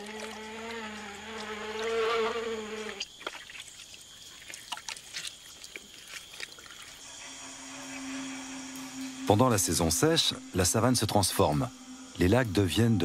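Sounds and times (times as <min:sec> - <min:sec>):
flying insect buzzing: 0:00.0 - 0:03.6, 0:06.8 - 0:13.0
soft wet sounds: 0:02.8 - 0:07.4.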